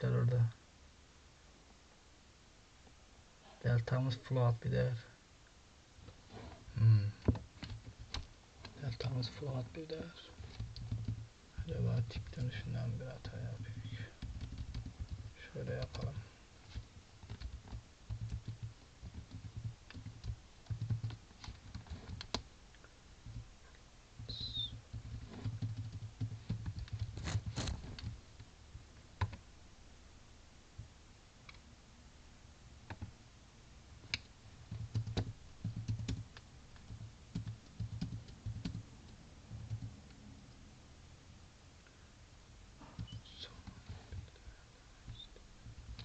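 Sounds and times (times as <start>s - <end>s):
computer keyboard typing: 10.4s - 11.2s, 11.9s - 22.4s, 24.4s - 28.2s, 34.1s - 38.8s, 39.5s - 40.0s
sharp keyboard clicks: 10.4s - 11.2s, 11.9s - 22.4s, 24.3s - 28.2s, 34.1s - 38.8s.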